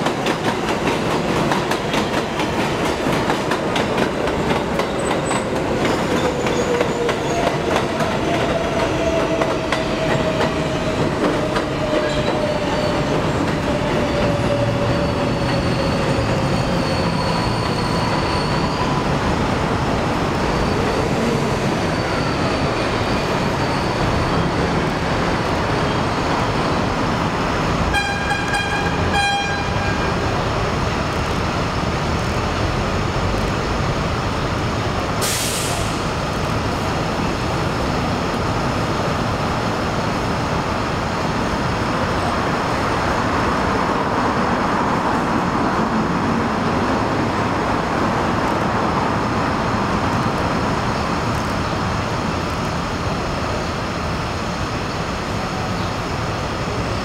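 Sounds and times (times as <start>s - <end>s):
subway train pulling away: 0.0s - 57.0s
train horn pulses: 27.9s - 30.2s
air hiss: 35.2s - 36.2s.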